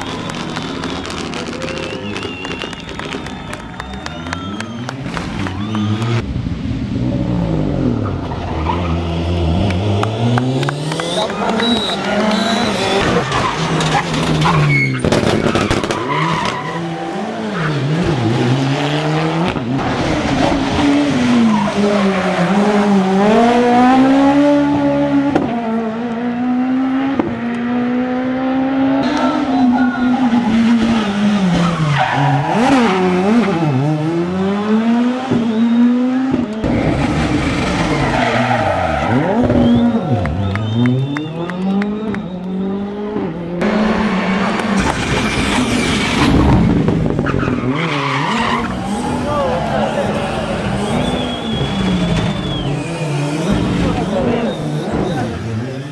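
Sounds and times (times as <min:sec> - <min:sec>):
rally car engines revving: 0:00.0 - 0:55.9.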